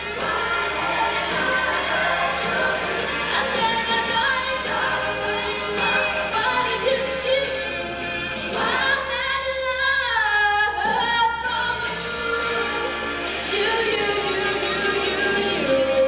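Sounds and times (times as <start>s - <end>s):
several voices singing: 0.0s - 7.1s
musical accompaniment: 0.0s - 16.0s.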